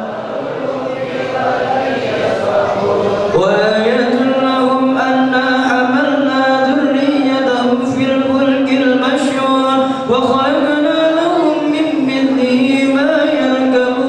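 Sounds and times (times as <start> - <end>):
men chanting in unison: 0.0 - 14.0.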